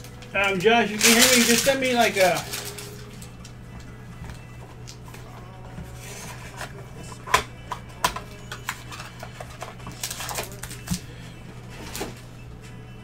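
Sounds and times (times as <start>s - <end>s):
wrapper crinkling and tearing: 0.0s - 3.5s, 8.7s - 11.0s.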